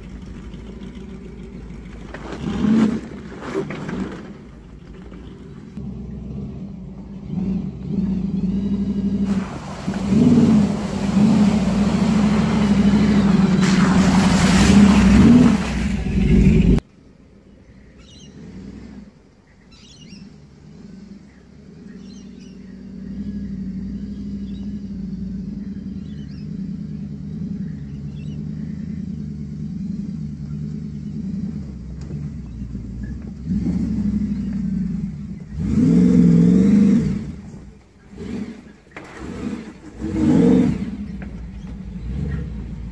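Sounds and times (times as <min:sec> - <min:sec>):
water and mud splashing: 0:00.0 - 0:05.8, 0:07.3 - 0:16.8, 0:30.5 - 0:42.9
engine revving under load: 0:00.0 - 0:16.8, 0:18.0 - 0:42.9.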